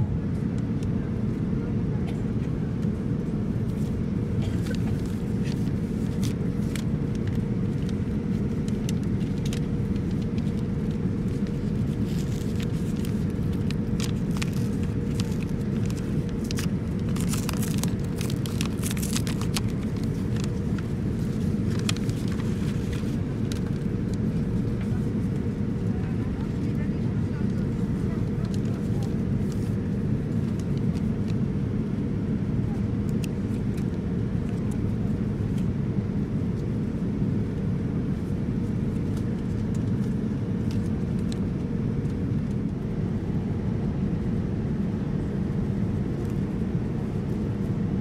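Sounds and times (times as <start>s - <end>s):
airliner cabin rumble: 0.0s - 48.0s
faint steady hum: 0.0s - 48.0s
paper envelope crinkling and tearing: 4.6s - 23.9s.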